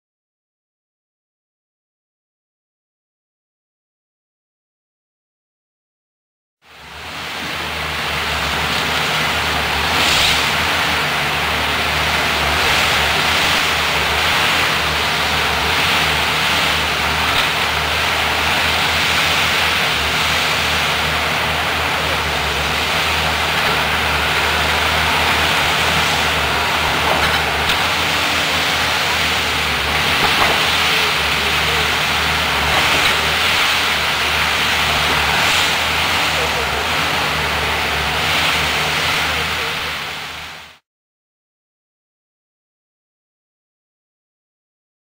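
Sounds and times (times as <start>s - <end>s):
diesel engine drone: 6.6s - 40.8s
hydraulic crane hiss: 7.2s - 40.6s.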